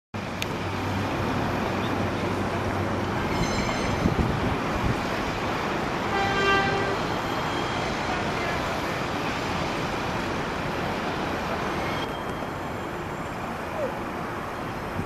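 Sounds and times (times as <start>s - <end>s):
train wheels rumbling on rail: 0.2s - 15.0s
high squeal: 3.0s - 4.2s, 6.8s - 8.0s, 11.7s - 13.9s.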